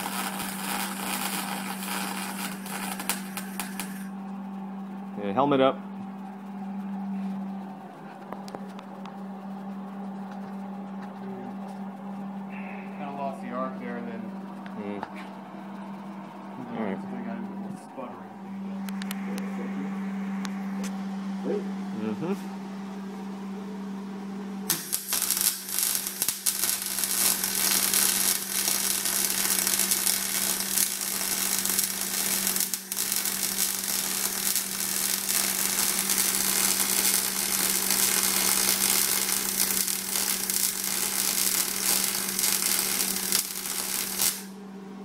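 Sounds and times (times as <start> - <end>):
welding arc crackling: 0.0 - 4.2, 24.7 - 44.6
steady low hum: 0.0 - 45.0.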